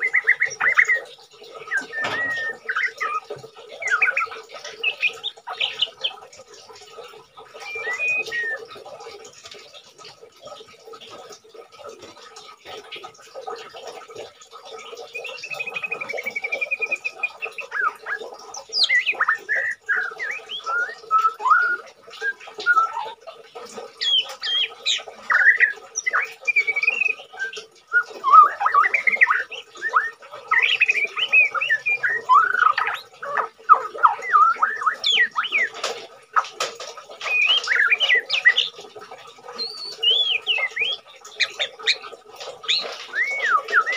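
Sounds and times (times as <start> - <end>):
songbird singing whistles and chatter: 0.0 - 9.2, 14.6 - 36.5, 37.2 - 38.8, 39.4 - 43.9.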